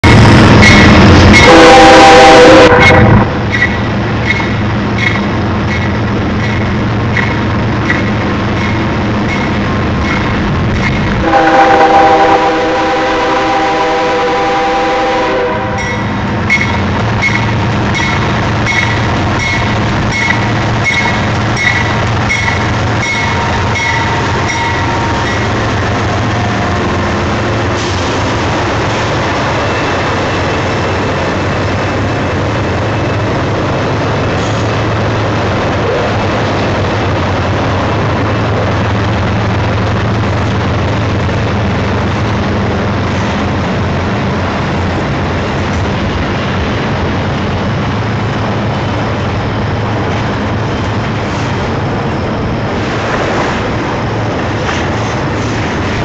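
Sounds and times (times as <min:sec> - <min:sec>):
train rumbling past: 0:00.0 - 0:56.0
locomotive horn: 0:01.3 - 0:03.3, 0:11.2 - 0:17.4.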